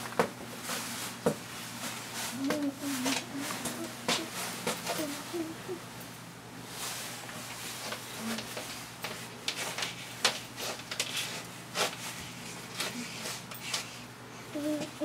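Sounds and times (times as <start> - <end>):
faint low hum: 0.6 - 10.0.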